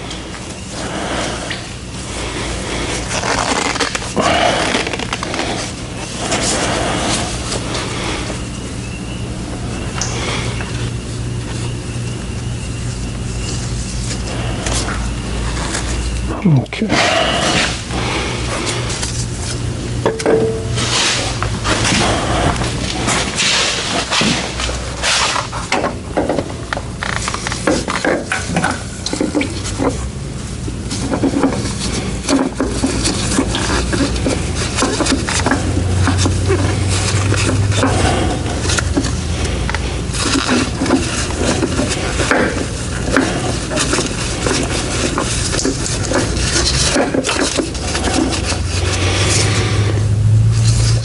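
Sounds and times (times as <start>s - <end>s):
steady low hum: 0.0s - 51.0s
clinks and scrapes on metal parts: 30.9s - 49.6s.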